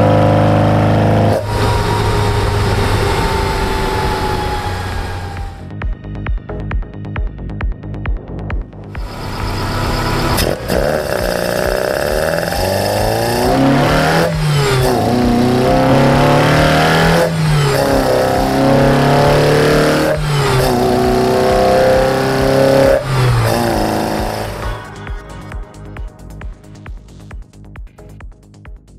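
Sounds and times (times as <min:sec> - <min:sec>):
engine intake note: 0:00.0 - 0:05.6, 0:09.0 - 0:24.9.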